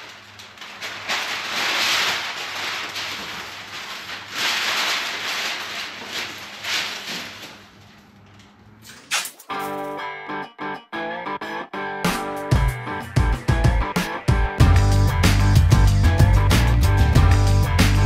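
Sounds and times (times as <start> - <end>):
paper rustling and crinkling: 0.0 - 8.5.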